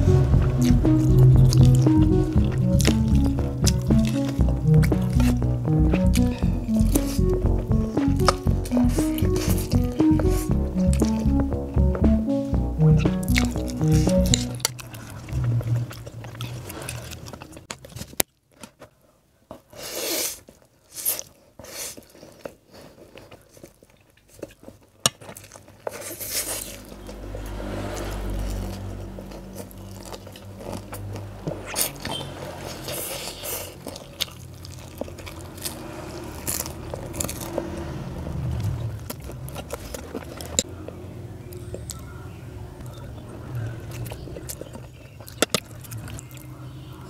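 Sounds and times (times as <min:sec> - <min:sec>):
crunchy chewing: 0:13.4 - 0:40.8, 0:42.8 - 0:47.0.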